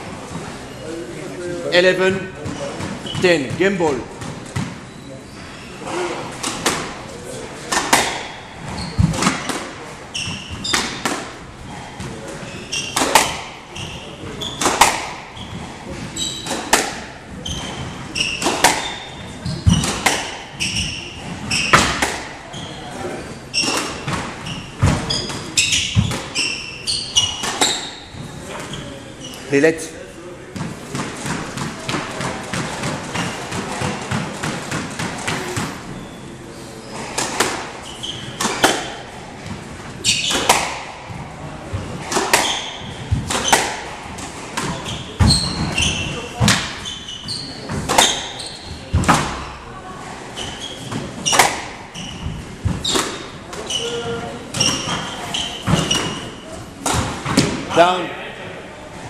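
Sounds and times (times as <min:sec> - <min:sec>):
shoes squeaking on wooden floor: 0:02.0 - 0:07.0, 0:07.7 - 0:29.6, 0:30.6 - 0:34.3, 0:35.0 - 0:49.6, 0:50.2 - 0:57.8
squash ball cracking off rackets: 0:06.3 - 0:11.4, 0:12.0 - 0:22.5, 0:23.6 - 0:26.4, 0:27.2 - 0:28.7, 0:37.0 - 0:46.8, 0:47.6 - 0:49.5, 0:50.4 - 0:57.7.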